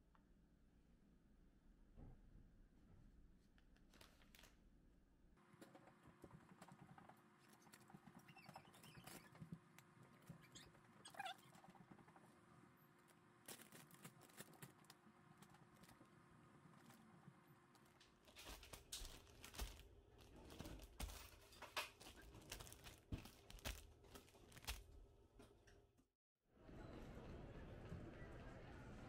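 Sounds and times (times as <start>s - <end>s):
plastic bags rustling: 13.0s - 25.0s.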